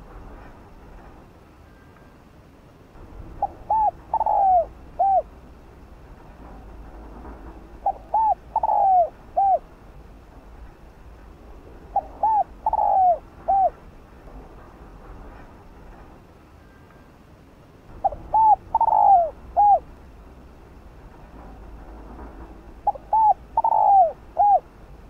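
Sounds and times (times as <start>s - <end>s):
dove cooing: 3.3s - 5.4s, 7.8s - 9.7s, 11.9s - 13.8s, 18.0s - 19.9s, 22.8s - 24.7s.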